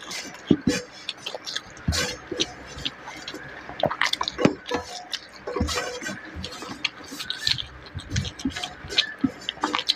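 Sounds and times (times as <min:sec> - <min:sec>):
fingers scraping a steel plate: 0:00.0 - 0:03.6, 0:04.2 - 0:09.9
chewing smacks: 0:00.0 - 0:09.9.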